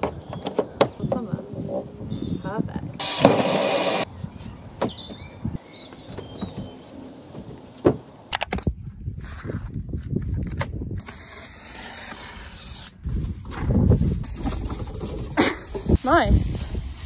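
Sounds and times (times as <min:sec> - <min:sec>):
knife slicing tape and cardboard: 0:10.4 - 0:13.0.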